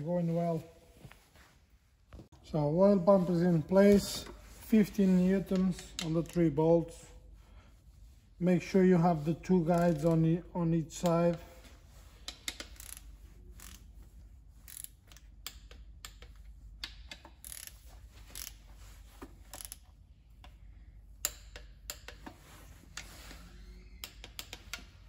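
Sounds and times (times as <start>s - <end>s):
ratchet wrench clicking: 12.2s - 13.9s, 14.6s - 18.6s, 19.5s - 20.5s, 21.2s - 22.2s, 24.0s - 24.9s.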